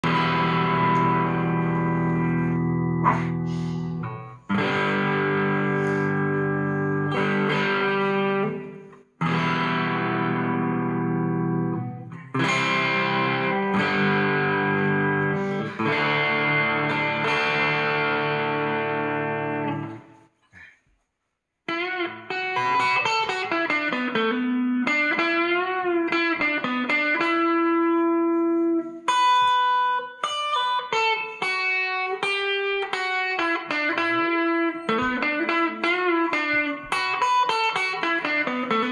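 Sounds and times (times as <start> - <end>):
distorted electric guitar: 0.0 - 20.3, 21.7 - 38.9.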